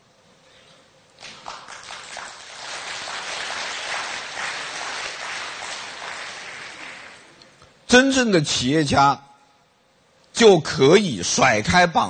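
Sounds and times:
audience applauding: 1.2s - 7.4s.

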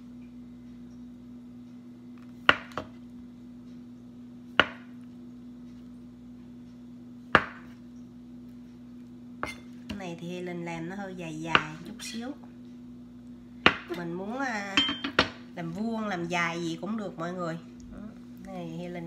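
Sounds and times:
steady low hum: 0.0s - 19.0s
knife knocking on cutting board: 4.6s - 4.9s, 7.4s - 7.8s.

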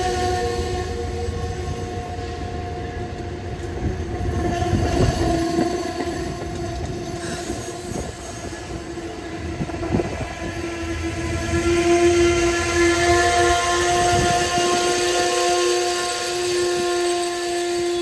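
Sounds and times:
train brakes squealing: 0.0s - 18.0s
train cars rumbling: 0.0s - 18.0s
wheels clicking over rail joints: 3.8s - 8.4s.

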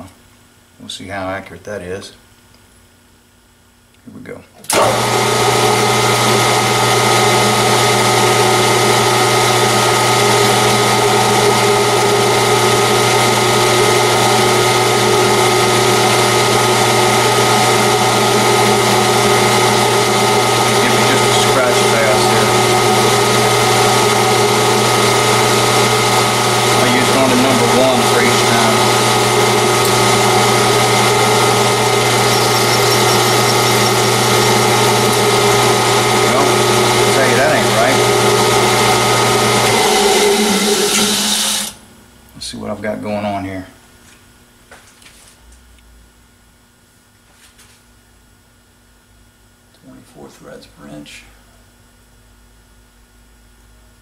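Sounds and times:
metal lathe motor and gear hum: 4.7s - 41.8s.

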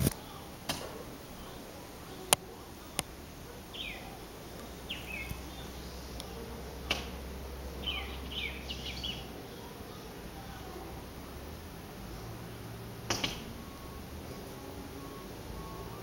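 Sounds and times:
galahs chirping: 0.0s - 16.0s.

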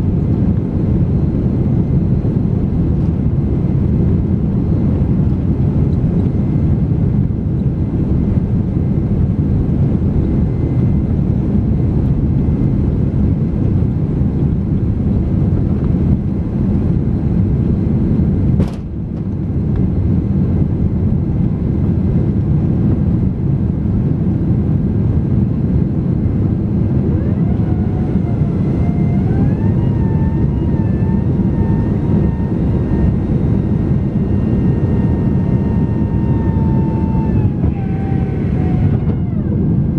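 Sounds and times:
jet engines roaring: 0.0s - 39.9s
rising whine: 24.6s - 39.9s.

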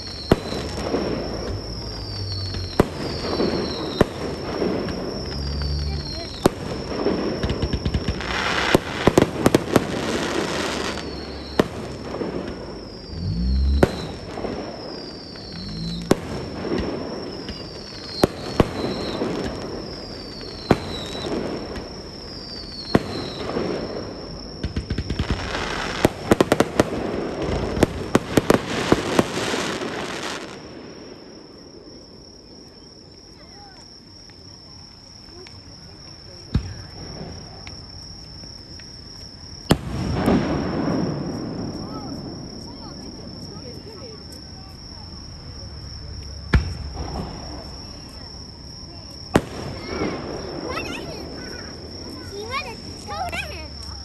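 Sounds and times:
falling whistles: 0.0s - 26.8s
fireworks shells bursting: 0.0s - 30.6s
dense fireworks crackling: 0.0s - 54.0s.

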